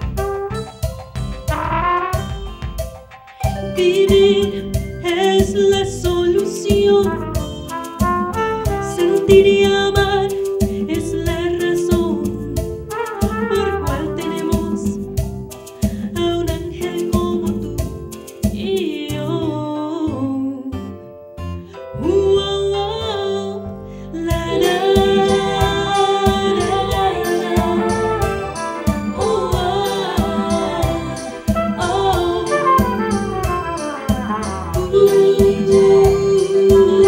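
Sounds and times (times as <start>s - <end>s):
trumpet: 0.0s - 3.0s, 7.0s - 10.8s, 12.8s - 15.1s, 24.6s - 37.0s
steady rhythmic beat: 0.0s - 5.7s, 24.5s - 37.0s
woman singing: 3.6s - 15.1s, 16.0s - 17.9s, 18.5s - 20.9s, 21.9s - 33.6s, 34.7s - 37.0s.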